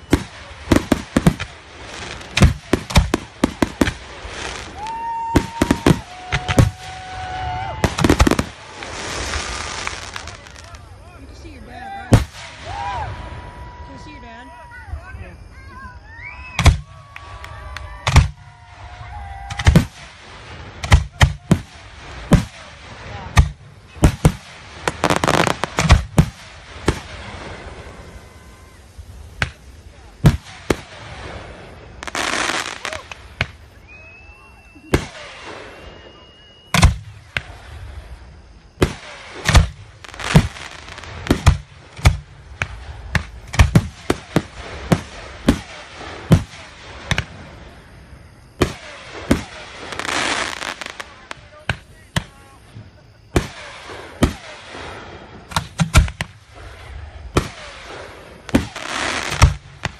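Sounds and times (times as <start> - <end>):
fireworks bursting bangs: 0.0 - 14.5, 16.4 - 59.9
fireworks crackling: 0.0 - 59.9
high firework whistle: 0.0 - 59.9.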